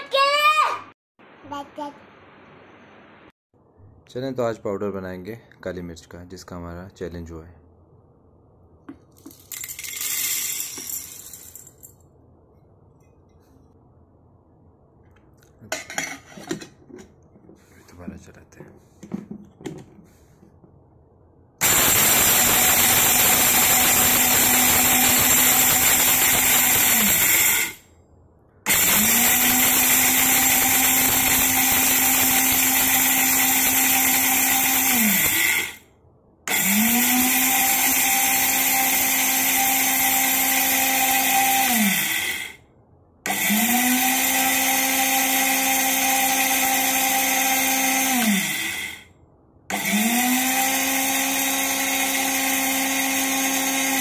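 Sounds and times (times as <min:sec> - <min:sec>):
electric spice grinder grinding: 0:21.6 - 0:27.8, 0:28.7 - 0:35.8, 0:36.5 - 0:42.6, 0:43.3 - 0:49.0, 0:49.7 - 0:54.0.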